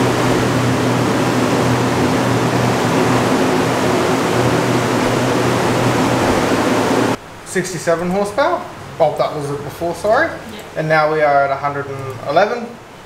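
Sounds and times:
rush of air: 0:00.0 - 0:07.2
low constant machinery hum: 0:00.0 - 0:13.0.

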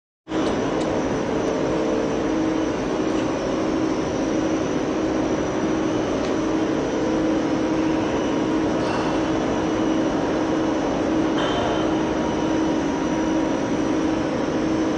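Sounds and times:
constant low hum: 0:00.3 - 0:14.9
kiln fans and burners rushing: 0:00.3 - 0:14.9.

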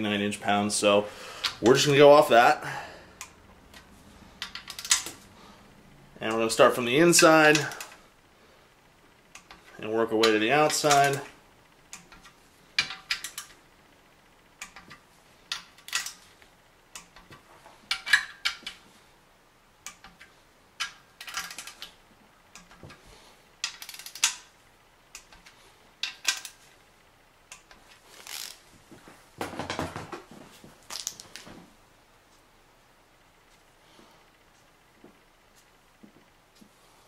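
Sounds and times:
ratchet wrench clicking: 0:04.4 - 0:05.1, 0:23.6 - 0:24.5
sharp metallic clicks: 0:09.3 - 0:13.6, 0:23.6 - 0:26.6.

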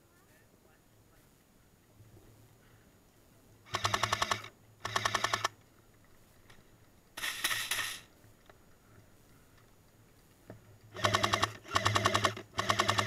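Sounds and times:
airsoft machine gun bursts: 0:03.7 - 0:05.6, 0:07.2 - 0:08.1, 0:10.9 - 0:13.0.

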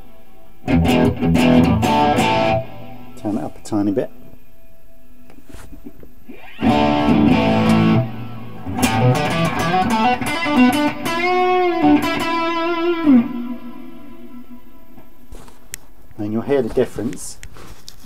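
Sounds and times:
electric guitar with reverb: 0:00.6 - 0:03.2, 0:06.3 - 0:15.0.

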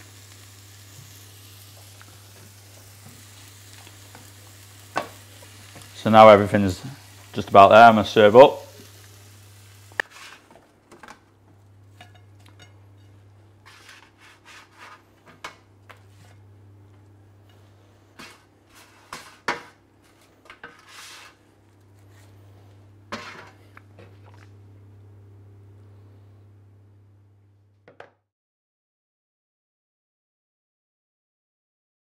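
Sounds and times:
utensils scraping and clinking: 0:11.9 - 0:16.4.

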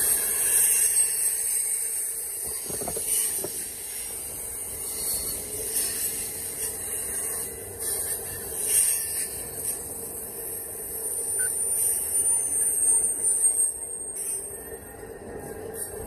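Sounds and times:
high wheel squeal: 0:11.0 - 0:16.0.

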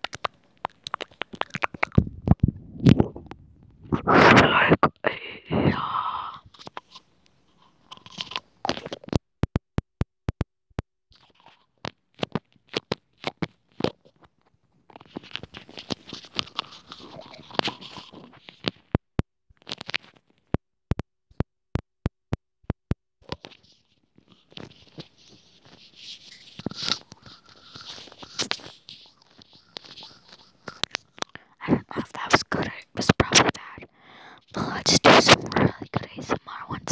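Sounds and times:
crinkling rustling noise: 0:00.0 - 0:04.9, 0:06.5 - 0:09.2, 0:11.1 - 0:19.0, 0:19.6 - 0:20.6, 0:23.2 - 0:36.9
sharp taps and clicks: 0:08.9 - 0:11.3, 0:18.7 - 0:23.4.

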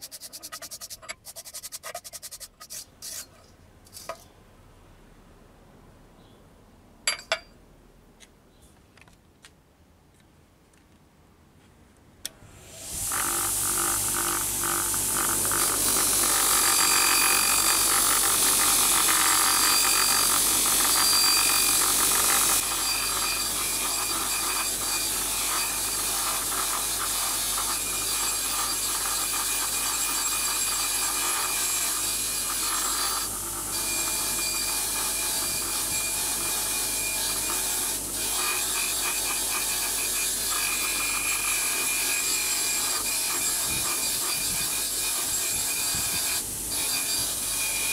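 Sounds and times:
steel bolt rasping on grinding wheel: 0:00.0 - 0:04.2
bench grinder motor whine: 0:12.5 - 0:47.9.

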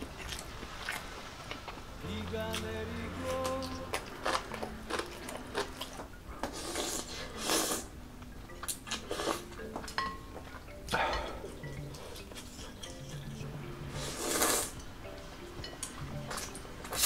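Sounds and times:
chewing: 0:00.0 - 0:17.0
faint background music: 0:00.0 - 0:17.0
slurping noodles: 0:04.0 - 0:08.0, 0:08.9 - 0:09.6, 0:13.9 - 0:14.8.

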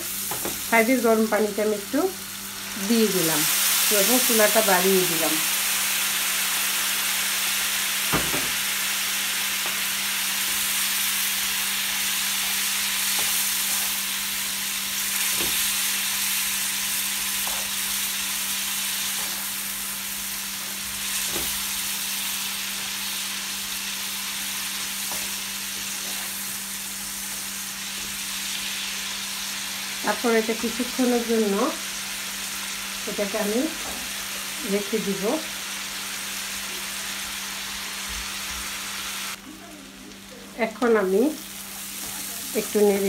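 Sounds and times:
food sizzling in frying pan: 0:00.0 - 0:43.0.

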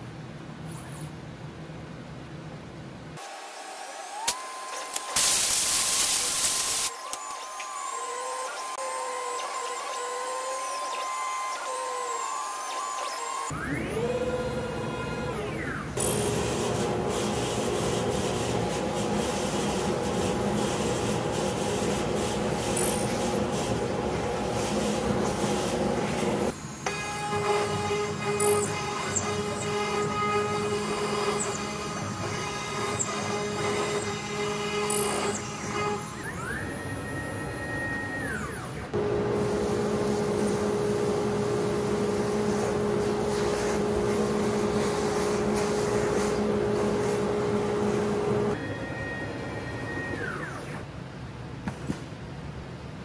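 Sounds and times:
router spindle whine winding down: 0:06.8 - 0:16.4, 0:26.0 - 0:50.8
dust extractor hum and air rush: 0:16.3 - 0:26.6, 0:38.9 - 0:48.6
vacuum motor hum: 0:35.2 - 0:50.8.

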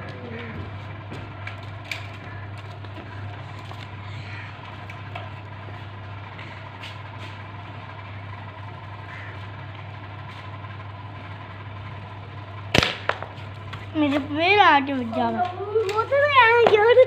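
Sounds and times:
steady low hum: 0:00.0 - 0:17.0
air rifle shot: 0:12.7 - 0:13.3.

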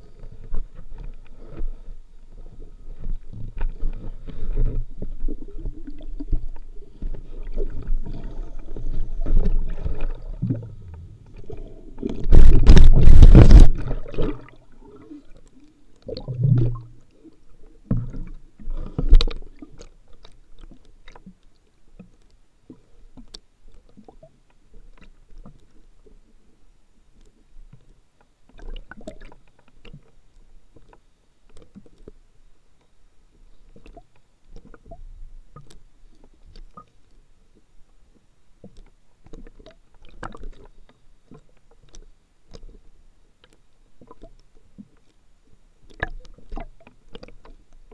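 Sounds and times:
muffled underwater rumble: 0:00.0 - 0:21.3
loud underwater churning: 0:06.9 - 0:15.3.

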